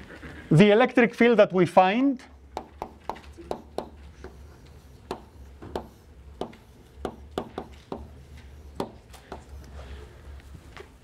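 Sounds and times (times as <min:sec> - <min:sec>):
chalk tapping on blackboard: 0:02.5 - 0:09.7.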